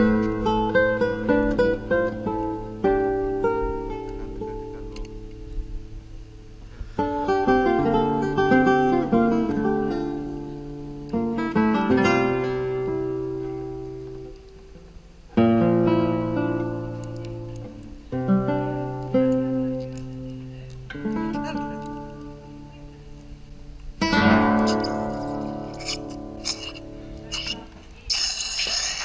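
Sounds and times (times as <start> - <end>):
acoustic guitar chords: 0.0 - 27.8.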